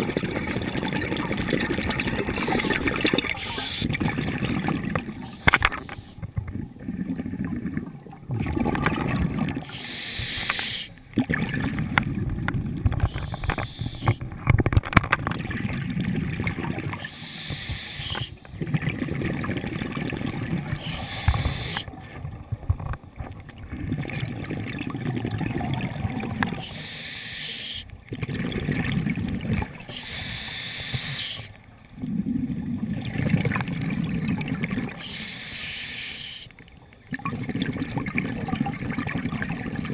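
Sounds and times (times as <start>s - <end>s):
exhaled bubbles rushing: 0.0s - 9.8s, 11.1s - 17.2s, 18.0s - 26.7s, 28.0s - 29.9s, 32.0s - 35.1s, 37.1s - 39.9s
diver breathing through regulator: 2.2s - 4.0s, 5.2s - 6.2s, 9.6s - 11.0s, 13.0s - 14.2s, 17.0s - 18.5s, 20.7s - 21.9s, 26.6s - 27.9s, 29.9s - 31.6s, 35.0s - 36.6s.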